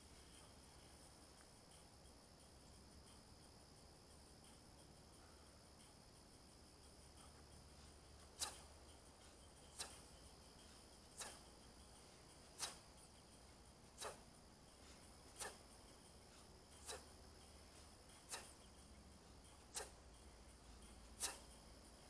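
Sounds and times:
crickets chirring: 0:00.0 - 0:22.0
kettlebell swing swishes: 0:07.0 - 0:22.0.

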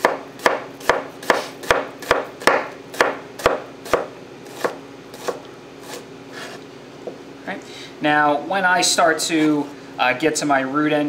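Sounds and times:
knife chopping on cutting board: 0:00.0 - 0:06.6.

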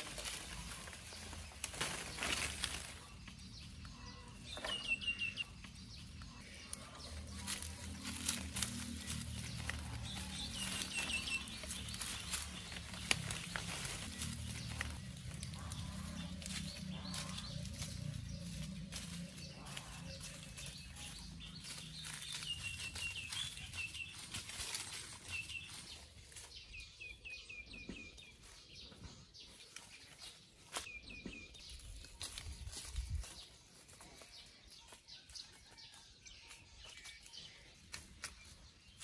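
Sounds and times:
bird chirping: 0:00.0 - 0:39.0
footsteps in dry leaves: 0:00.0 - 0:39.0.

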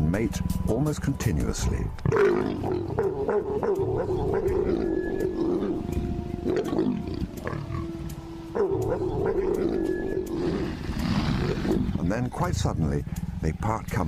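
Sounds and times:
leopards growling and snarling: 0:02.0 - 0:12.2.

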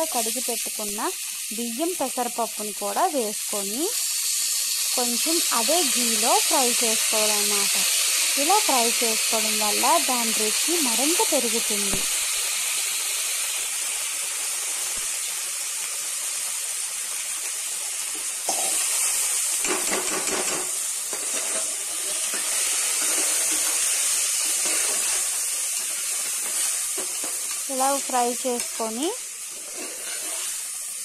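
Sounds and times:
rice sizzling in hot ghee: 0:00.0 - 0:31.0
metal spoon scraping grains: 0:21.1 - 0:30.9.

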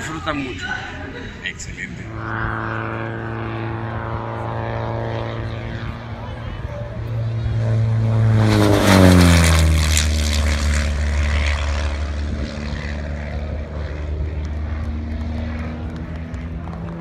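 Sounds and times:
propeller plane passing low: 0:00.0 - 0:17.0.

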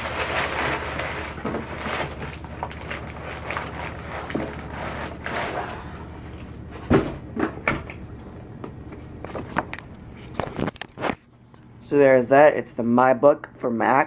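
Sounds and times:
cardboard rustling: 0:00.0 - 0:07.1.

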